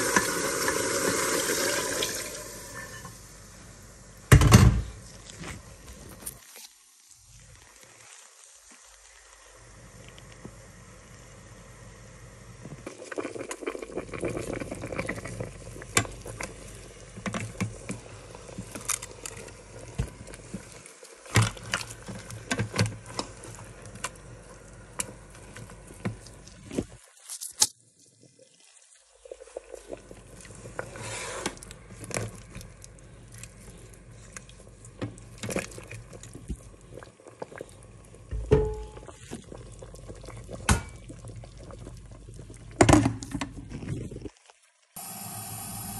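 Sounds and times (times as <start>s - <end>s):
wet liquid stirring sounds: 12.8s - 44.8s.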